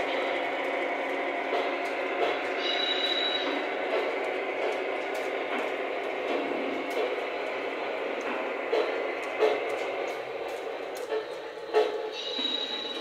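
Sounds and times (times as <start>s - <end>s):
model train rolling noise: 0.0s - 13.0s
high squeal: 2.6s - 3.6s, 12.1s - 13.0s.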